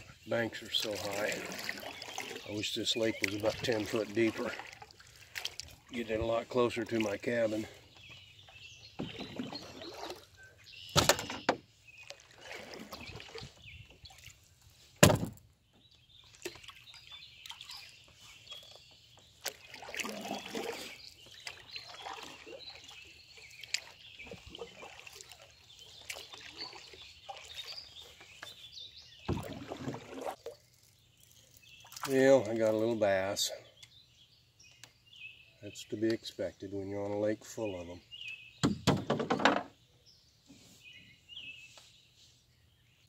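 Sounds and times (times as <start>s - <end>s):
water sloshing: 0.0s - 33.6s
faint birdsong: 0.0s - 43.0s
knocks against canoe hull: 10.9s - 11.7s, 15.0s - 15.4s, 38.6s - 39.8s.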